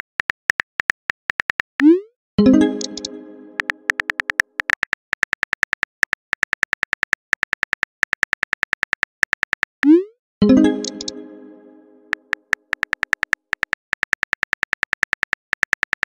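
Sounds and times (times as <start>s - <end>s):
chime: 2.4s - 3.9s, 10.4s - 12.2s
phone keyboard typing clicks: 2.6s - 9.8s, 12.1s - 16.0s.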